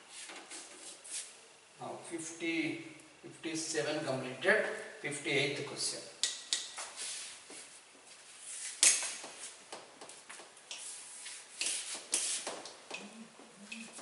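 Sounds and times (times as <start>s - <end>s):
eraser rubbing on whiteboard: 10.8s - 12.6s.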